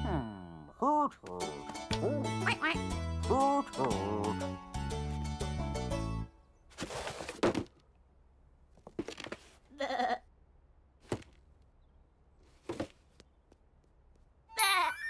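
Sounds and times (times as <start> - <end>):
cartoon lamb bleat: 9.7 - 10.3.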